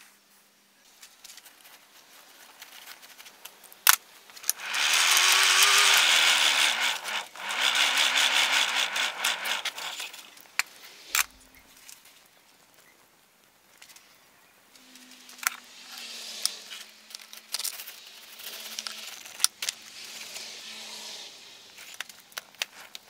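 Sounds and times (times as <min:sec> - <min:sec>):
forge blower rushing air: 0:04.5 - 0:11.6.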